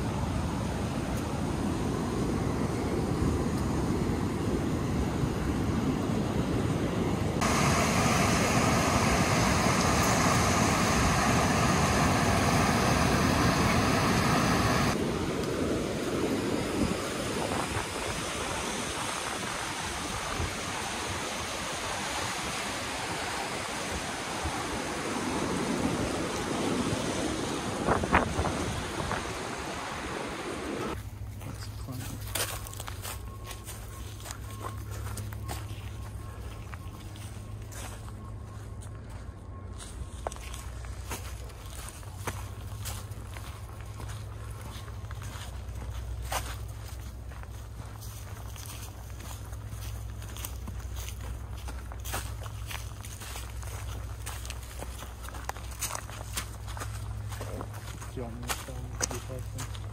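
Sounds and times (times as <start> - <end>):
wind on microphone: 0.0 - 31.0
whitewater rapids rushing: 7.4 - 15.0, 16.9 - 31.0.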